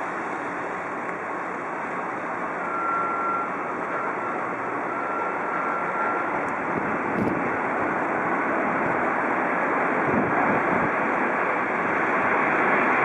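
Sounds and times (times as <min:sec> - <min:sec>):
faint high whine: 0:00.0 - 0:08.1
jet engines roaring: 0:00.0 - 0:13.0.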